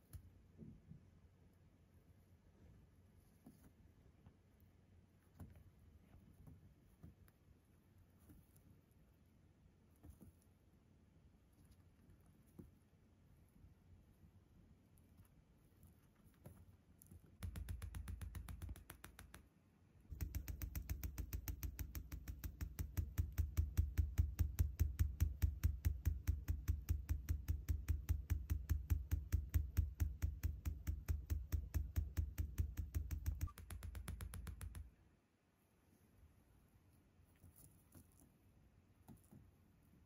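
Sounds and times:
bird beak tapping on cushion: 0:17.3 - 0:19.4, 0:20.1 - 0:34.9.

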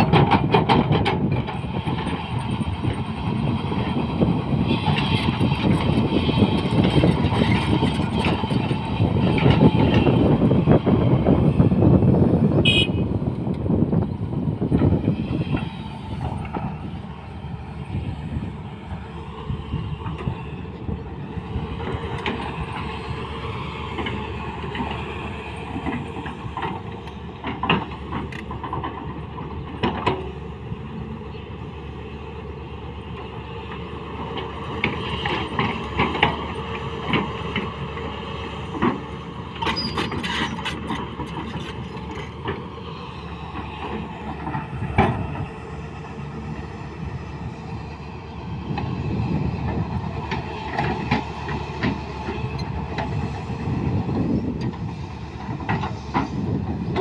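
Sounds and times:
metallic clanks from tracks: 0:00.0 - 0:03.0, 0:23.9 - 0:30.6, 0:34.4 - 0:37.9, 0:38.5 - 0:47.1, 0:48.7 - 0:57.0
excavator diesel engine running: 0:00.0 - 0:57.0.

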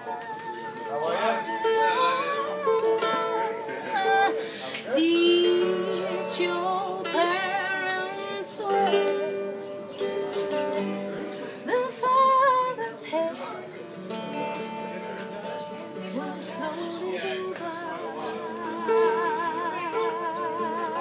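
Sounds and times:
person singing: 0:00.0 - 0:09.4, 0:16.0 - 0:21.0
acoustic guitar: 0:00.0 - 0:21.0.

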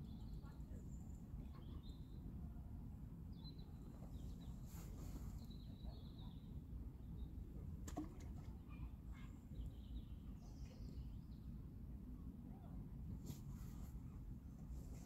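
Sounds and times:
small birds chirping: 0:00.0 - 0:02.3, 0:03.3 - 0:07.6, 0:08.7 - 0:11.6.

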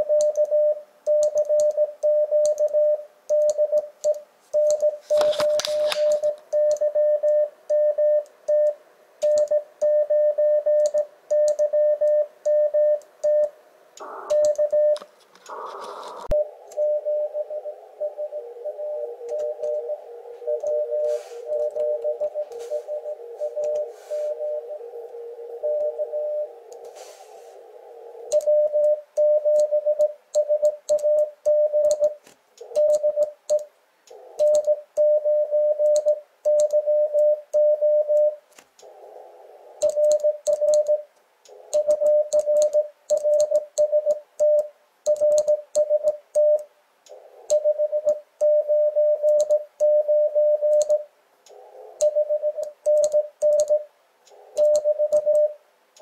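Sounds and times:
morse code tone: 0:04.6 - 0:24.9, 0:54.6 - 0:55.6
radio band hiss: 0:14.0 - 0:16.7, 0:17.7 - 0:25.6, 0:26.4 - 0:28.3.

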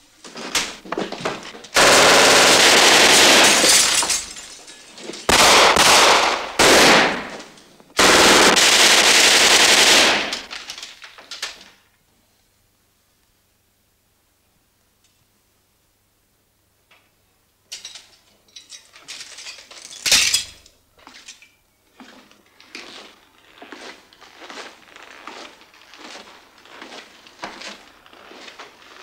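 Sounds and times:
footsteps on wooden floor: 0:22.0 - 0:29.0.

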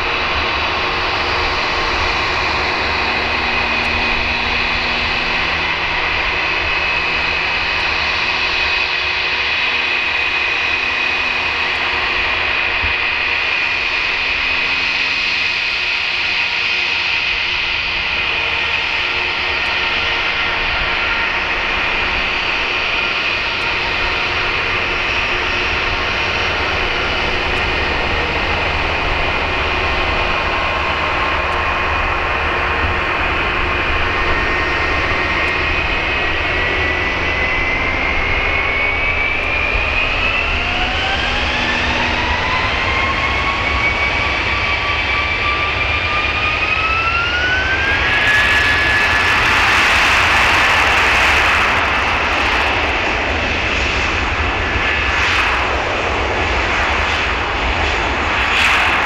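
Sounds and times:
jet engines whining: 0:00.0 - 0:59.0.

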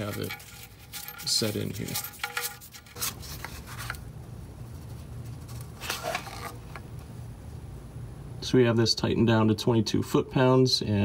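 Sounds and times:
wrench scraping and clicking: 0:00.0 - 0:03.0
faint low hum: 0:00.0 - 0:11.0.

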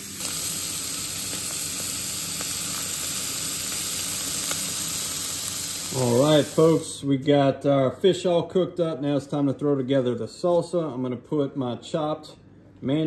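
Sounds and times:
fish sizzling in a skillet: 0:00.0 - 0:06.8.

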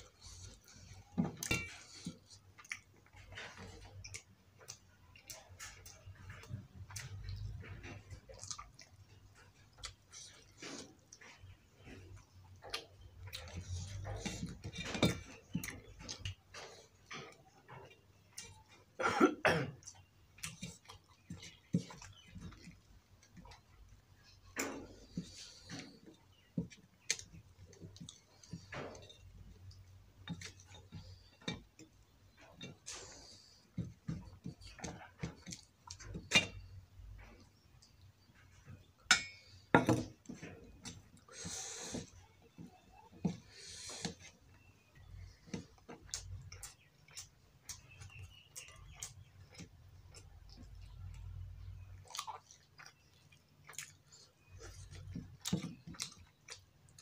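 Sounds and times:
person chewing: 0:00.0 - 0:11.2, 0:19.7 - 0:29.8, 0:42.9 - 0:51.4, 0:52.0 - 0:57.0.

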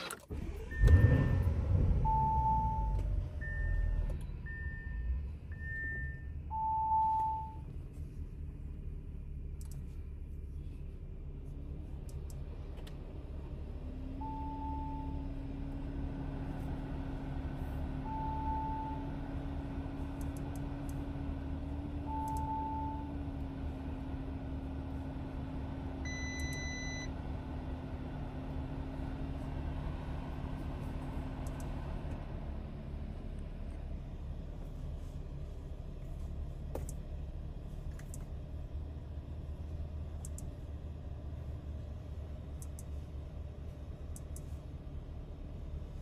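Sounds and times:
short electronic beeps: 0:26.1 - 0:27.1
faint clicks: 0:42.5 - 0:43.0.

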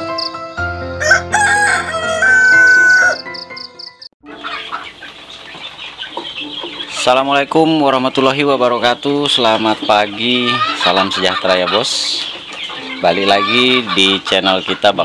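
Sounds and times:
soft background music: 0:00.0 - 0:15.0
rooster crowing: 0:00.9 - 0:03.4
chickens clucking: 0:01.4 - 0:15.0.

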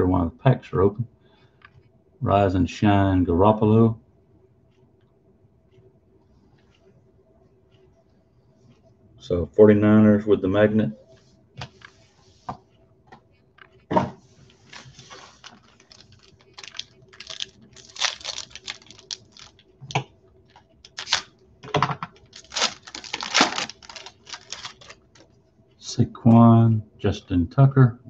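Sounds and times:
cards being shuffled: 0:14.6 - 0:19.6, 0:20.5 - 0:21.3, 0:22.2 - 0:25.2
foil wrappers crinkling and tearing: 0:14.6 - 0:19.7, 0:20.5 - 0:21.3, 0:22.1 - 0:25.3.

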